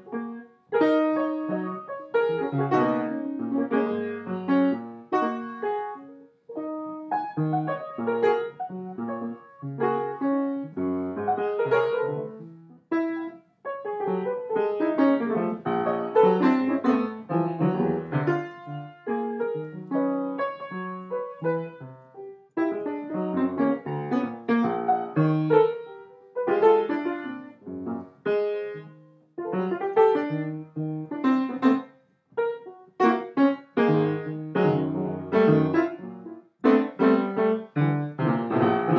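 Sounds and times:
piano music: 0.0s - 38.9s.

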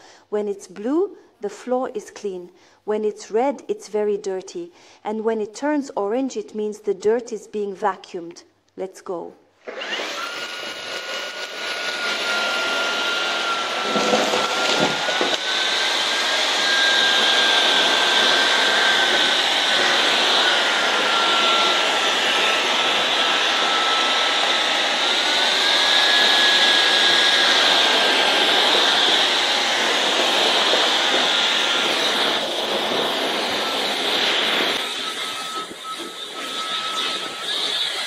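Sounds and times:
stick vacuum running: 9.6s - 38.0s.

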